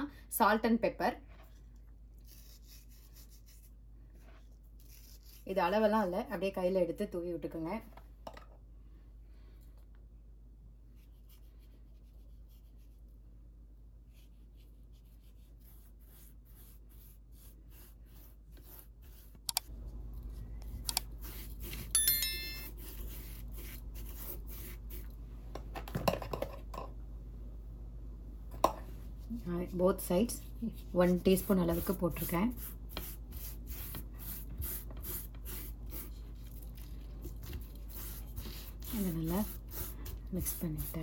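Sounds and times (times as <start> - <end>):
low steady hum: 0.0 - 41.0
high ringing tone: 21.9 - 22.8.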